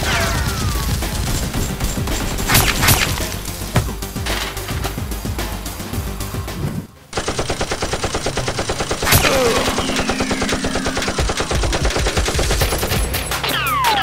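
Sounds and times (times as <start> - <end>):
automatic gunfire: 0.2 - 4.6, 7.2 - 13.4.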